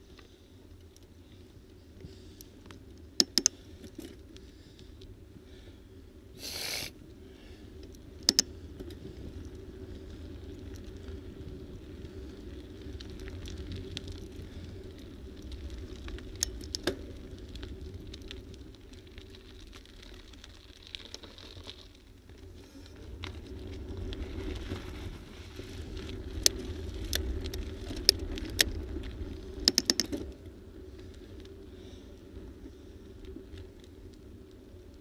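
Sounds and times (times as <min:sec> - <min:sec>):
wind rumble on microphone: 0:00.0 - 0:35.0
bicycle rattling over bumps: 0:07.1 - 0:35.0.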